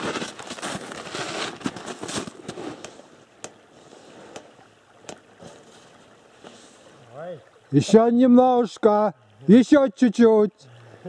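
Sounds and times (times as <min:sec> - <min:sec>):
snow crunching: 0:00.0 - 0:04.5
rustling movement at microphone: 0:00.0 - 0:07.0.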